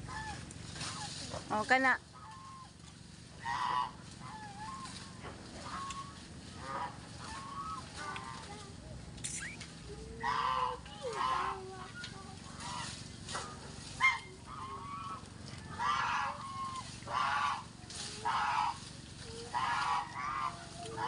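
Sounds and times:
goose honking: 0:00.0 - 0:01.0, 0:02.1 - 0:02.7, 0:03.4 - 0:08.4, 0:10.2 - 0:11.6, 0:14.0 - 0:18.8, 0:19.5 - 0:21.0.

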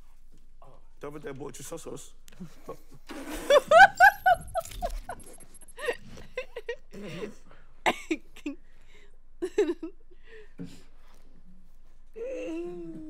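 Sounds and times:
high-pitched squealing laughter: 0:03.2 - 0:06.9.

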